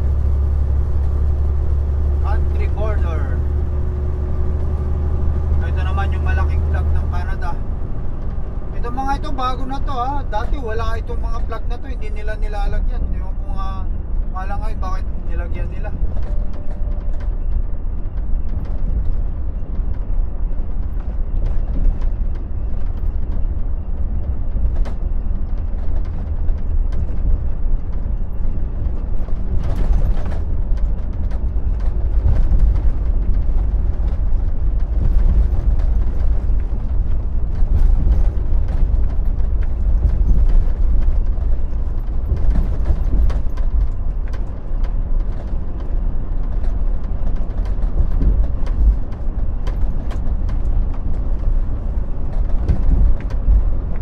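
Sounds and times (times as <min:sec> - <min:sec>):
truck engine and tyres rumbling: 0:00.0 - 0:54.0
light clicks and rattles: 0:14.4 - 0:54.0.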